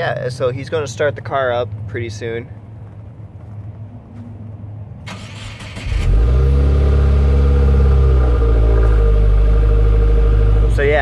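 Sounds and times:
car engine idling: 5.1s - 11.0s.

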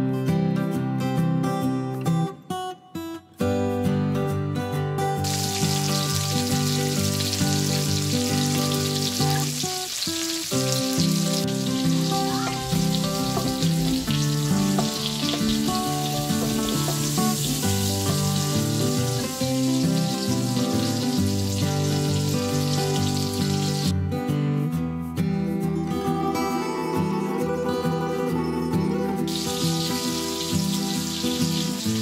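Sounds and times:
guitar music: 0.0s - 32.0s
vegetables sizzling in pan: 5.2s - 23.9s, 29.3s - 32.0s.

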